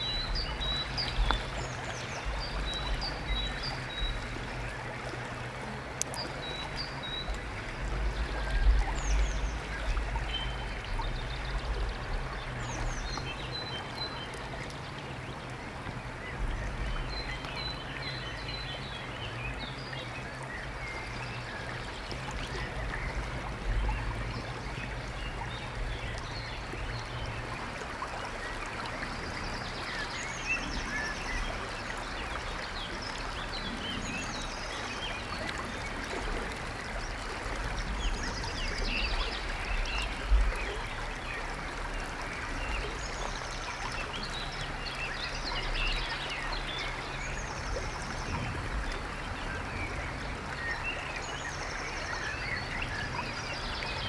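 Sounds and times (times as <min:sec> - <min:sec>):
stream water running: 0:00.0 - 0:54.0.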